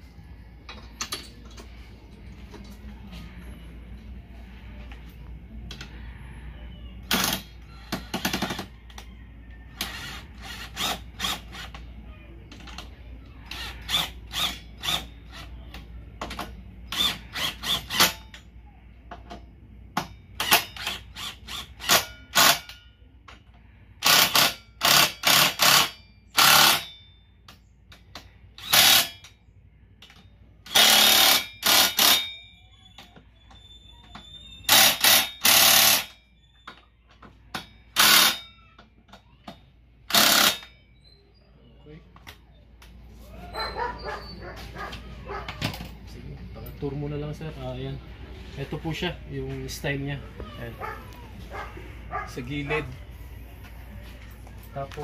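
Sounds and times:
cordless power driver bursts: 0:28.6 - 0:29.1.

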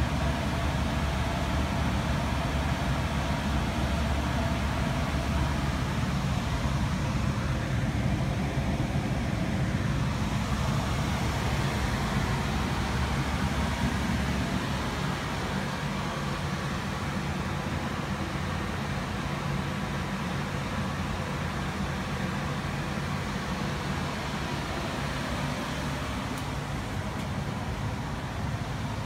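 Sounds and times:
furnace blower fan humming: 0:00.0 - 0:29.0.

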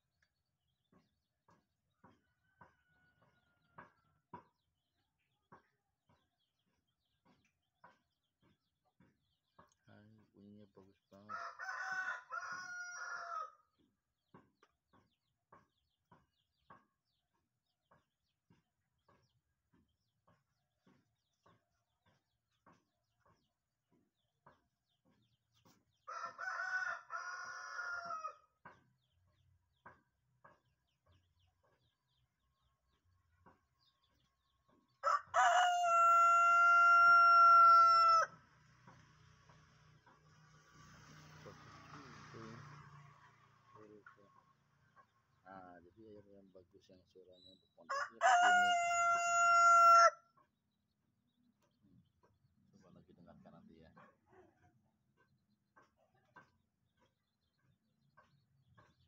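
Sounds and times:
rooster crowing: 0:11.3 - 0:13.6, 0:26.1 - 0:28.4, 0:35.0 - 0:38.4, 0:47.9 - 0:50.2.

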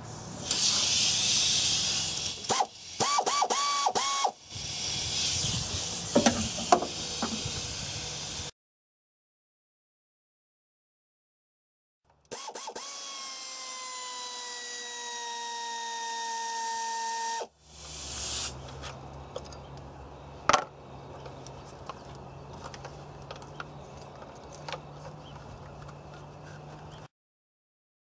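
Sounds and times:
power ratchet whining: 0:00.4 - 0:07.6.

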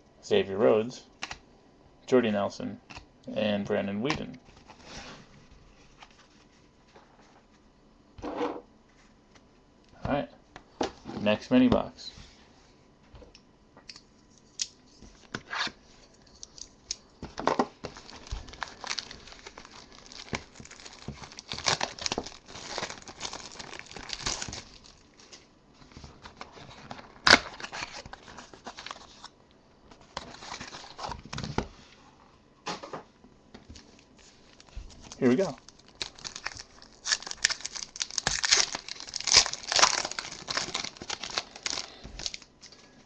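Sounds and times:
packaging tearing and crinkling: 0:17.8 - 0:29.3, 0:30.1 - 0:31.6, 0:34.5 - 0:42.8.

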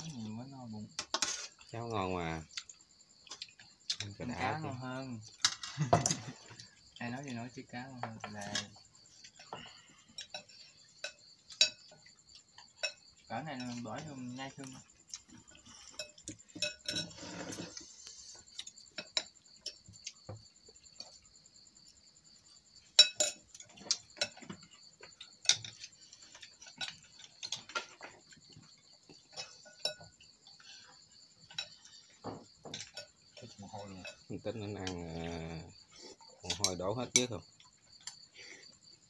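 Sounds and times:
utensils clinking on porcelain bowls: 0:05.2 - 0:06.7, 0:15.5 - 0:17.8, 0:23.0 - 0:24.6, 0:25.3 - 0:30.2, 0:31.4 - 0:35.3.

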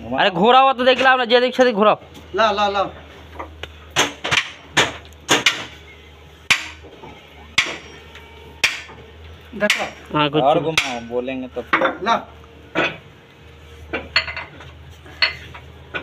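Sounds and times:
steady low hum: 0:00.0 - 0:16.0
metal-on-metal knocks: 0:04.0 - 0:05.8, 0:07.6 - 0:07.9, 0:08.6 - 0:09.0.

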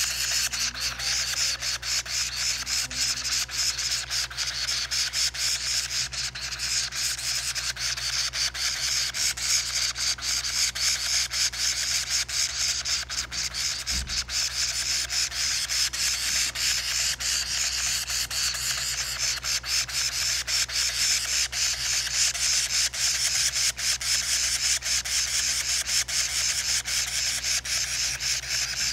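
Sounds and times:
parrot nestlings begging calls: 0:00.0 - 0:28.9.

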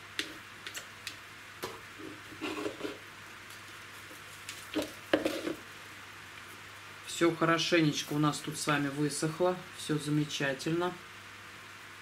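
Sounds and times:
moss rustling and crackling: 0:03.4 - 0:05.6.

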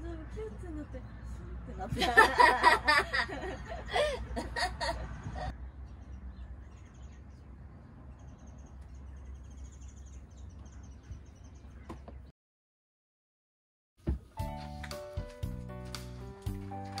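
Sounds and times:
faint birds chirping: 0:00.0 - 0:12.3.

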